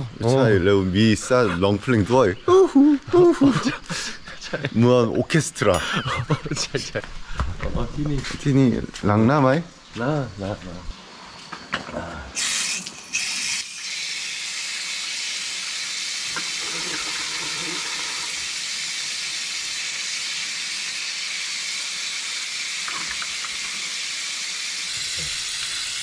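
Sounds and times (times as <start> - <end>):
water running from tap into trough: 12.4 - 26.0.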